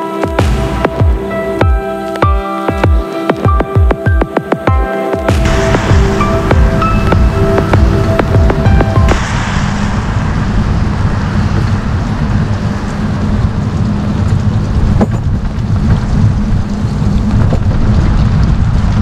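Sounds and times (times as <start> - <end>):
rain hiss: 0.0 - 19.0
wind buffeting microphone: 5.3 - 19.0
bike tyres on wet path: 10.2 - 19.0.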